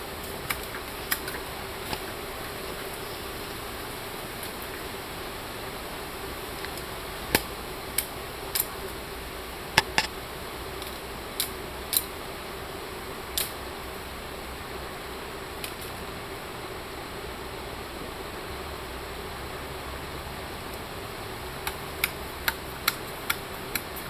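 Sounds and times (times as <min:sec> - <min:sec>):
steady background hiss: 0:00.0 - 0:24.0
machete striking bamboo pole: 0:09.8 - 0:10.1.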